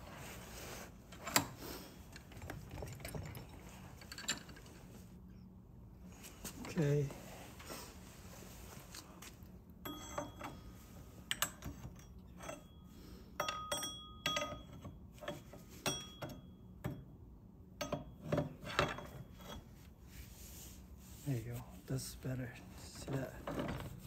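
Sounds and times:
hand tools clanking on metal: 0:13.4 - 0:16.4.

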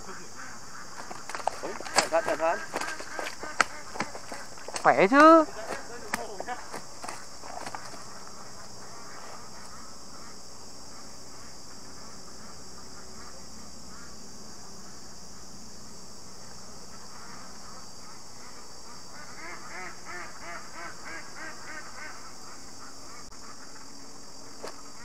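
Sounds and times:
ducks quacking: 0:00.0 - 0:14.2
steady high hiss: 0:00.0 - 0:25.0.

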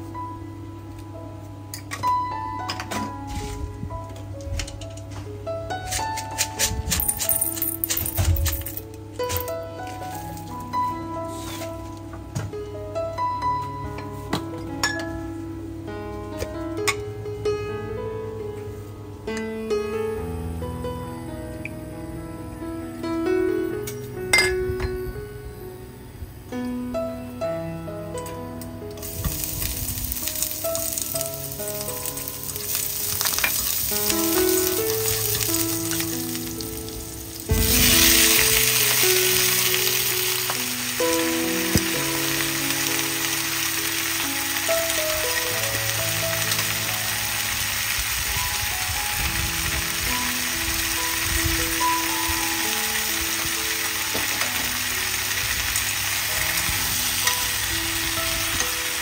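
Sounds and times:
gentle melodic background music: 0:00.0 - 0:59.0
food sizzling in hot oil: 0:29.0 - 0:59.0.

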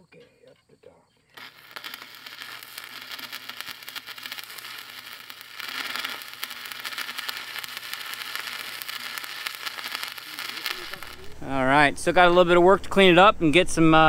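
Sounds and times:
welding arc crackling: 0:01.4 - 0:12.2.

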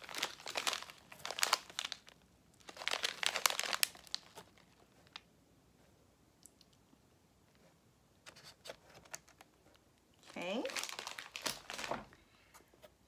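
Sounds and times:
plastic bag crinkling: 0:00.0 - 0:05.2, 0:10.2 - 0:12.2.

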